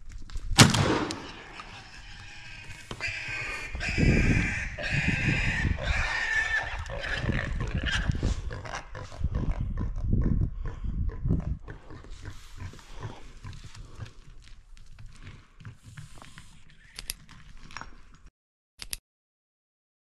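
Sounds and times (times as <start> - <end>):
shotgun shot: 0.6 - 1.5
wild boar squealing: 1.2 - 9.2.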